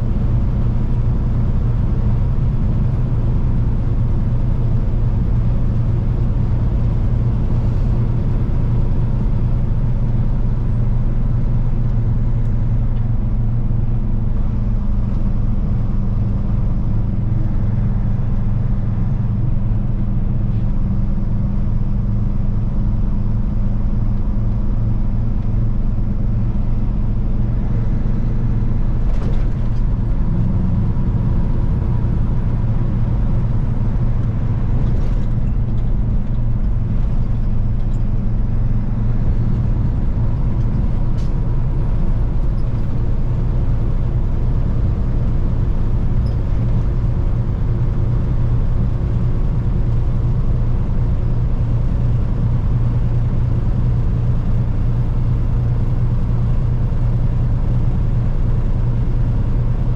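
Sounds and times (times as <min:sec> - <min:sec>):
truck diesel engine humming: 0:00.0 - 0:59.9
tyre and road noise: 0:23.8 - 0:55.9.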